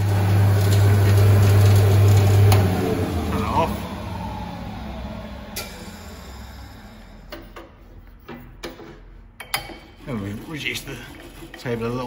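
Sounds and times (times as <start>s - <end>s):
planer thicknesser running down: 0.0s - 7.4s.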